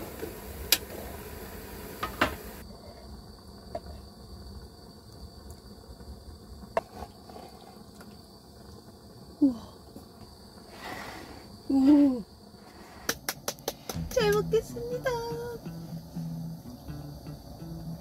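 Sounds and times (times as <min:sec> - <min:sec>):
faint steady hiss: 0:00.0 - 0:18.0
thin high whine: 0:13.9 - 0:18.0.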